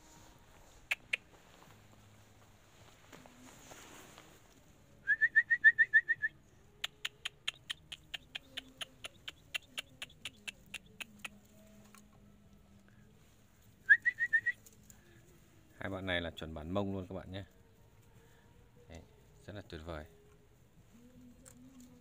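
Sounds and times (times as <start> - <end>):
sharp ticks: 6.8 - 11.4.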